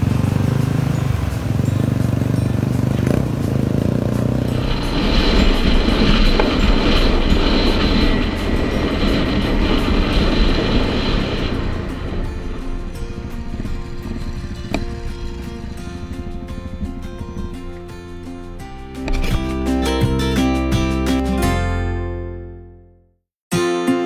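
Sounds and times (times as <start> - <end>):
motorbike engines running: 0.0 - 20.7
wind noise on microphone: 4.4 - 20.2.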